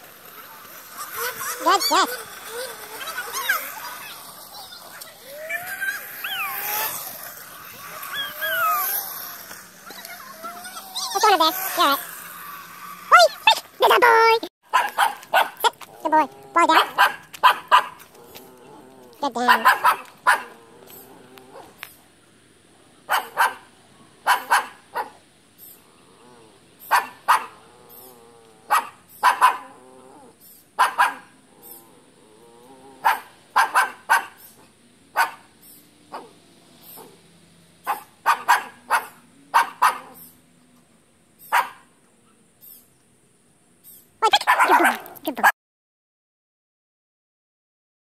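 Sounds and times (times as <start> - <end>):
dog barking: 14.7 - 15.7, 16.7 - 18.0, 19.4 - 20.6, 23.1 - 25.2, 26.9 - 27.6, 28.7 - 29.7, 30.8 - 31.3, 33.0 - 34.5, 35.2 - 35.5, 37.8 - 40.2, 41.5 - 41.9, 44.2 - 45.5.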